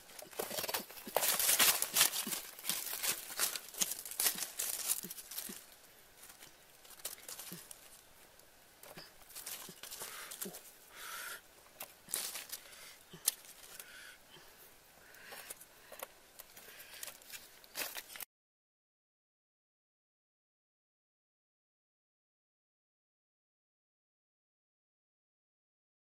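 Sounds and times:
dry leaves rustling and crackling: 0.1 - 8.1, 9.2 - 10.7, 11.8 - 13.9, 17.0 - 18.2.

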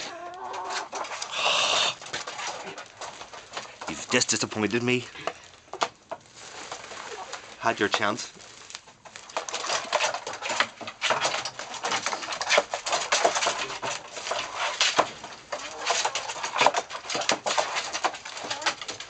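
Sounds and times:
chickens clucking softly: 0.0 - 2.0
chickens pecking in straw: 0.0 - 19.0.

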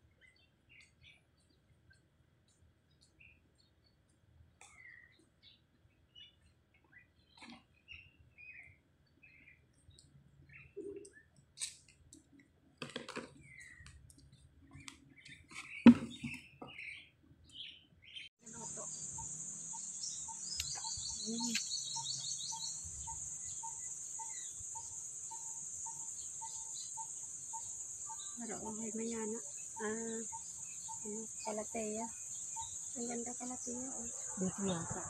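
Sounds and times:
small birds chirping: 0.0 - 12.4, 13.0 - 35.0
faint regular peeping: 13.4 - 34.7
high-pitched insect drone: 18.4 - 35.0.

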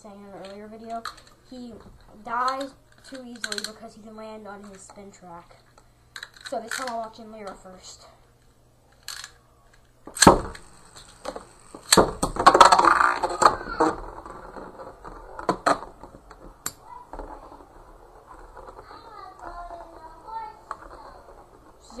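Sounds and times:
spinning tops rattling and whirring: 0.2 - 5.3, 6.2 - 7.9, 8.9 - 22.0
spinning tops clacking: 10.1 - 13.8.

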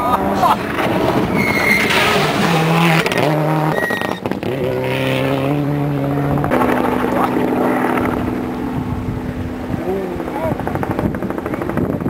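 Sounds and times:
rally car engine at full throttle: 0.0 - 12.0
tyres on gravel: 0.2 - 5.3.

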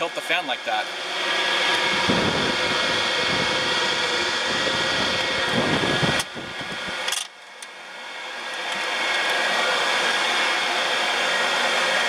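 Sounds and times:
fan whirring: 0.0 - 12.0
wind buffeting microphone: 1.8 - 7.0.

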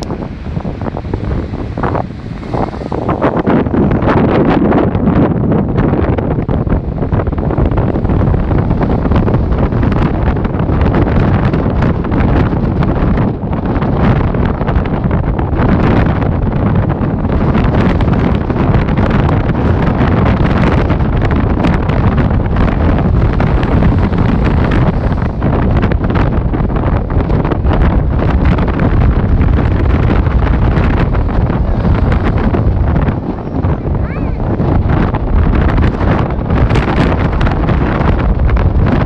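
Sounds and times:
surf breaking against seawall: 0.0 - 39.0
wind buffeting microphone: 0.0 - 39.0.

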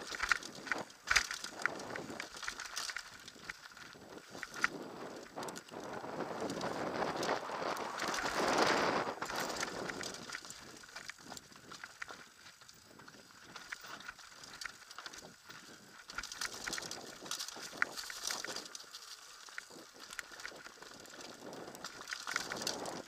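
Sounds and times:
bike clicking and rattling: 0.0 - 23.0
wind rushing over microphone: 4.0 - 10.9.

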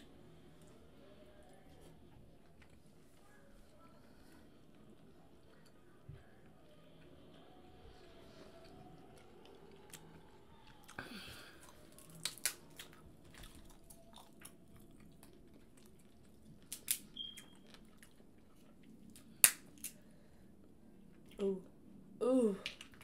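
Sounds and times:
soft chewing: 0.0 - 21.8
crab shells cracking: 11.7 - 14.6, 16.6 - 17.1.

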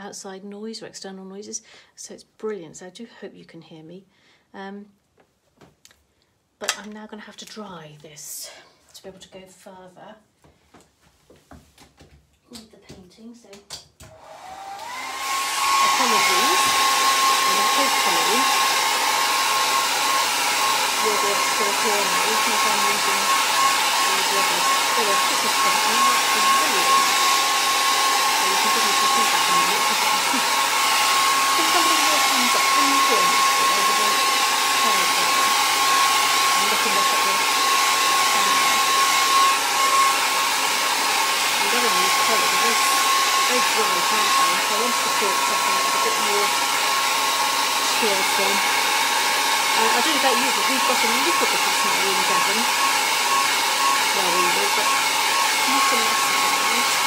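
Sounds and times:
hair dryer running: 14.0 - 57.0.

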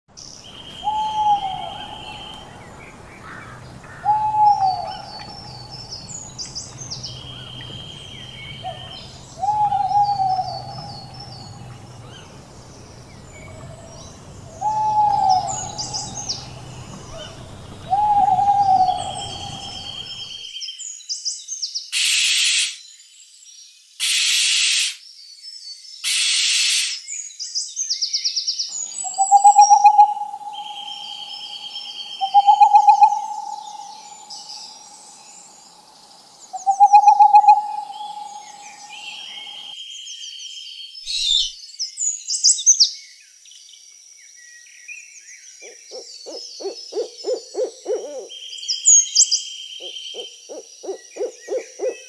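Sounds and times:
birds chirping and whistling: 0.2 - 20.5, 28.7 - 35.6, 36.5 - 39.8, 41.1 - 42.9
owl hooting: 0.5 - 20.4, 28.8 - 35.4, 36.5 - 39.7, 45.6 - 48.4, 49.8 - 52.0
low hum: 1.0 - 20.3.

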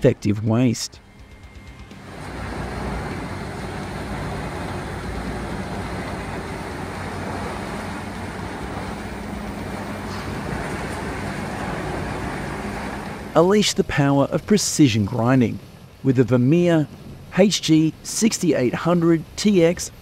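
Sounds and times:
wood grinder engine drone: 1.0 - 13.4.

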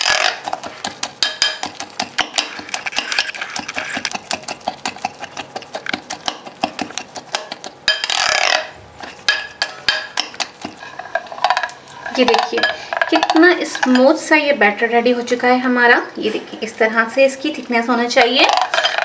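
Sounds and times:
spoon scraping glass bowl: 0.0 - 14.2, 18.4 - 19.0.

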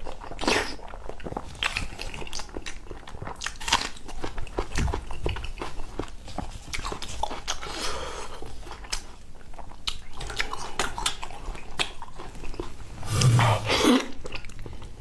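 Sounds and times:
chewing food: 0.0 - 15.0
wet mouth clicks and crunches: 8.7 - 14.9.

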